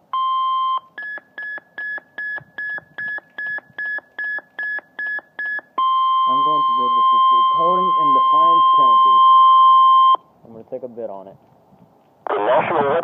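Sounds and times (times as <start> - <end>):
high beeps: 0.2 - 10.2
long steady alarm tone: 5.8 - 10.2
steady radio tone: 6.3 - 9.3, 12.2 - 13.0.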